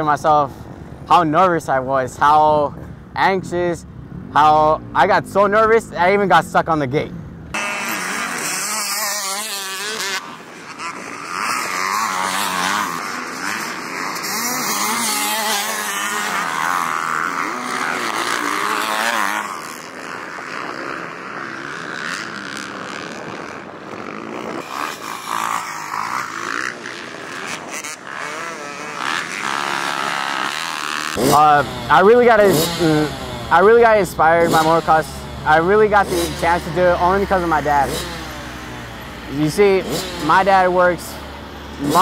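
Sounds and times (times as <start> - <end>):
motocross engine revving: 0.0 - 42.0.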